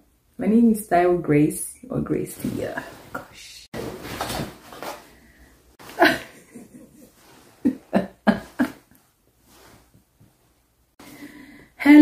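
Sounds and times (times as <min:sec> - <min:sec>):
woman laughing: 0:05.8 - 0:08.9.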